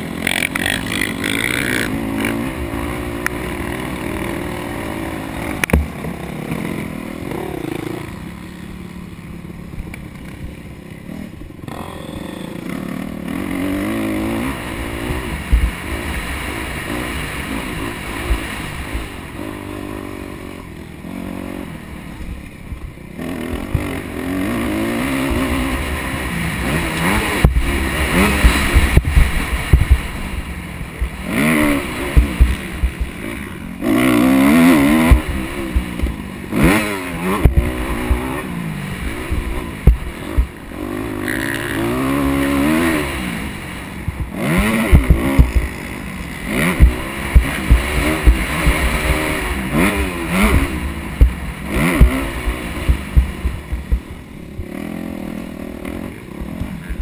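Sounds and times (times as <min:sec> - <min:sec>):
dirt bike engine revving: 0:00.0 - 0:57.0
short low thumps: 0:28.4 - 0:30.2, 0:39.3 - 0:40.6, 0:44.0 - 0:45.8, 0:46.7 - 0:49.5, 0:50.3 - 0:54.8.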